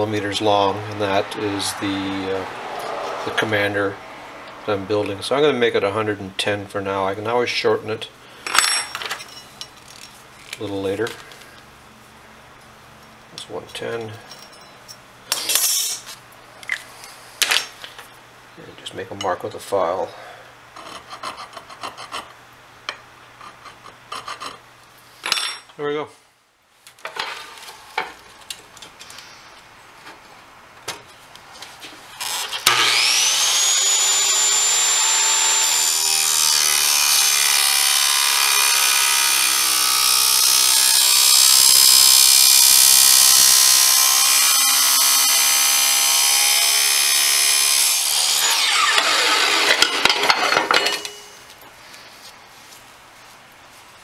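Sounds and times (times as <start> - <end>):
chop saw motor whine: 0.6 - 4.7, 32.2 - 51.3
saw blade cutting steel tube: 15.3 - 16.1, 32.2 - 51.4.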